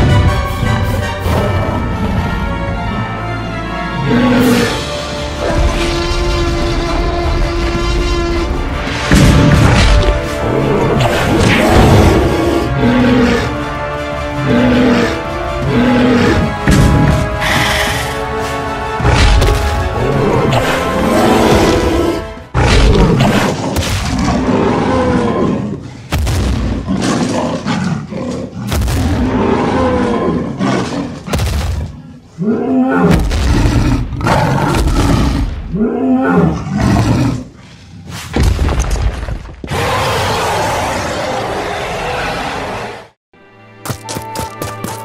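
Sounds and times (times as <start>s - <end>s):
background music: 0.0s - 31.5s, 41.7s - 45.0s
dinosaur roars: 4.0s - 13.6s, 14.4s - 18.2s, 20.0s - 26.0s, 26.7s - 31.3s, 32.0s - 37.6s, 39.7s - 43.1s
deep booming impacts: 8.6s - 10.3s, 16.5s - 17.4s, 26.1s - 26.9s.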